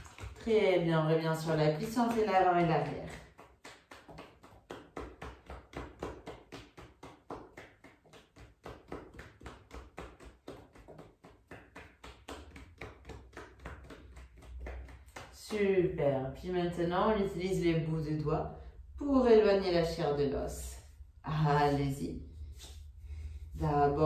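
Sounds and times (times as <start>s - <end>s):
fists tapping on thigh: 1.9s - 16.0s.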